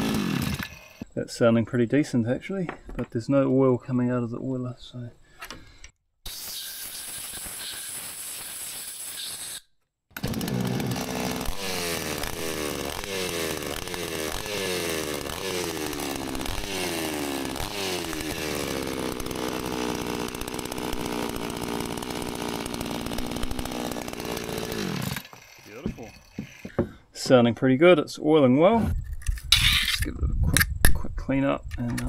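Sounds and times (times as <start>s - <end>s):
chainsaw engine revving: 0.0s - 1.1s, 10.2s - 26.8s
hiss: 6.3s - 9.6s.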